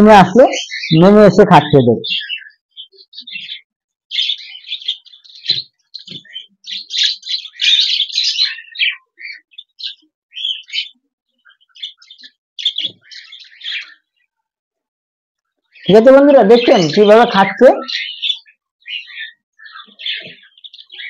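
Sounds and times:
budgerigars chirping: 0:00.0 - 0:14.3, 0:15.6 - 0:21.0.

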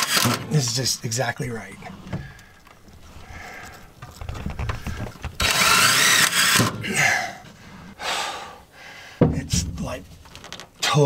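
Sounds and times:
cordless drill whining: 0:00.0 - 0:00.4, 0:02.0 - 0:08.0.

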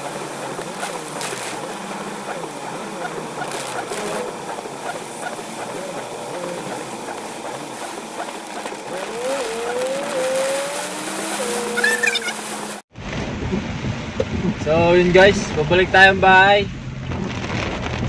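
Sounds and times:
heavy rain drumming on car roof: 0:00.0 - 0:11.8, 0:17.0 - 0:18.0.

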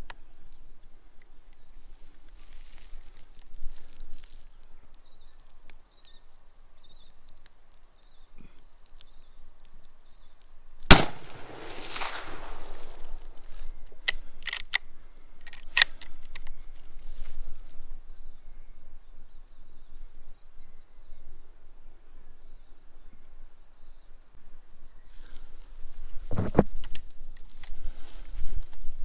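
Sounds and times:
rifle shot: 0:10.9 - 0:13.2
sharp clicks: 0:13.9 - 0:16.6.

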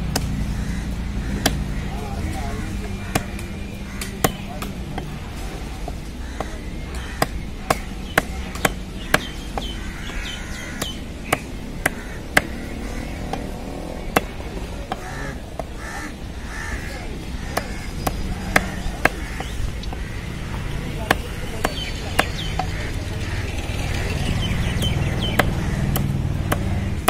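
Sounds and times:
birds calling: 0:00.0 - 0:27.0.

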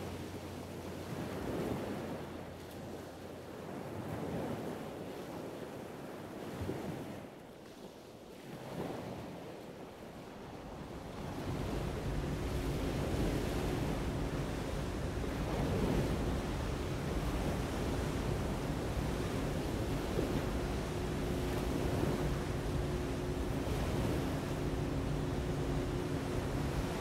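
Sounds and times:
faint steady hum: 0:10.0 - 0:27.0
steady rushing noise: 0:11.0 - 0:27.0.

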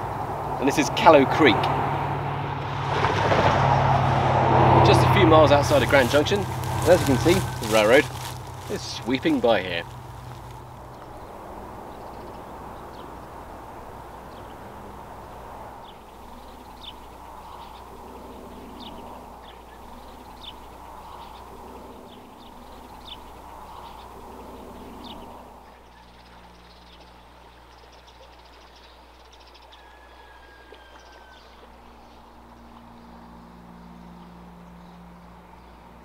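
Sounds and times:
bird chirps: 0:15.8 - 0:36.0.

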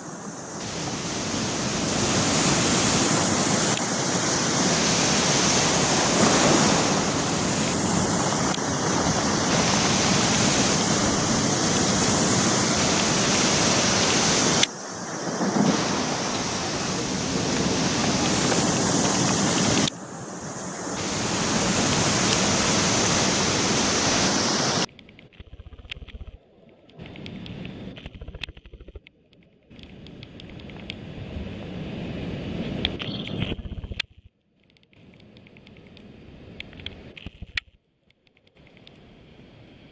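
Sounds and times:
surf breaking over rocks: 0:00.0 - 0:24.9
shallow water washing: 0:00.0 - 0:27.6
wind on microphone: 0:00.6 - 0:24.9, 0:29.7 - 0:34.0.

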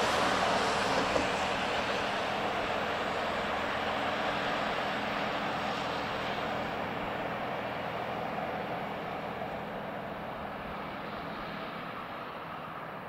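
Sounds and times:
train wheels rolling on rails: 0:00.0 - 0:13.0.

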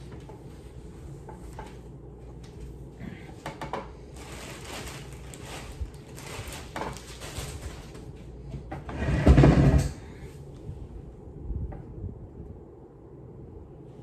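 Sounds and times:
rummaging through things: 0:00.0 - 0:10.5.

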